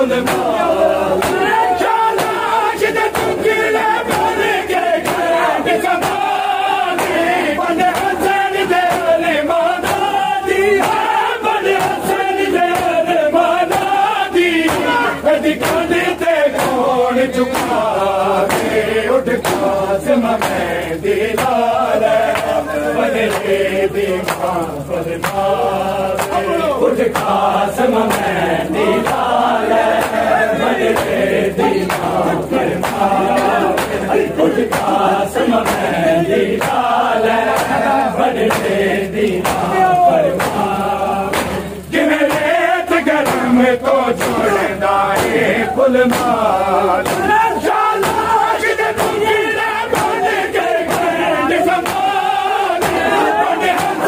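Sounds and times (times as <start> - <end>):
men chanting in unison: 0.0 - 54.0.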